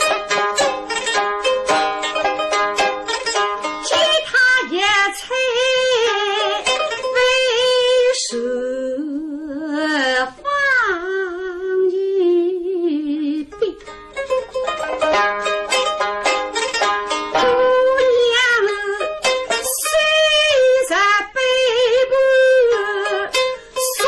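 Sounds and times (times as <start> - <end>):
plucked pipa notes: 0.0 - 8.5, 13.5 - 24.0
woman singing long wavering notes: 3.8 - 13.8, 17.4 - 24.0.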